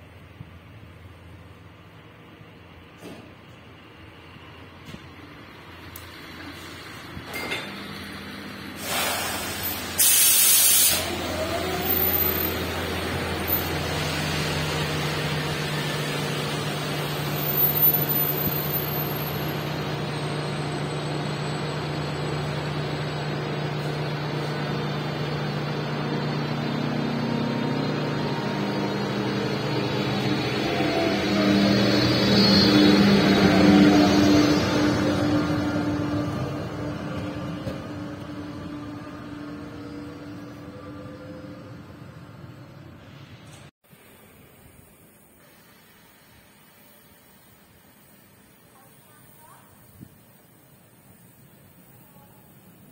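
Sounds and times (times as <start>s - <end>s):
locomotive mechanical hum: 0.0s - 52.9s
air hiss bursts: 8.7s - 16.5s, 43.9s - 52.0s.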